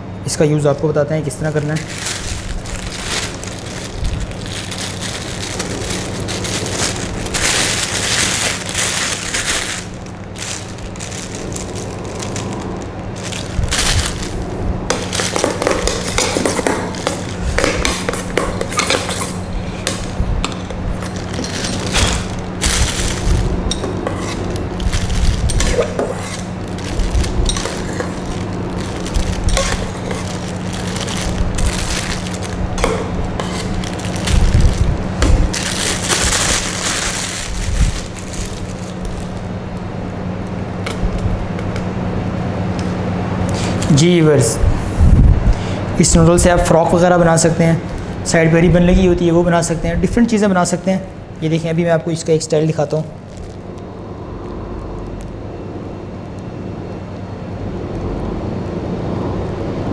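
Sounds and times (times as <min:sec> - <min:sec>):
steady low hum: 0:00.0 - 0:59.9
plastic piping bag crinkling: 0:01.2 - 0:39.8, 0:46.3 - 0:49.3, 0:51.4 - 0:53.8.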